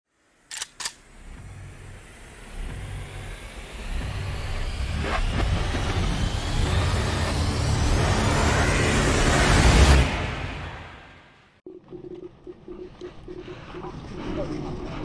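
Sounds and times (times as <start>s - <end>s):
faint rising whine: 0.1s - 10.9s
sharp clicks: 0.5s - 1.0s
low rumble: 0.8s - 11.0s.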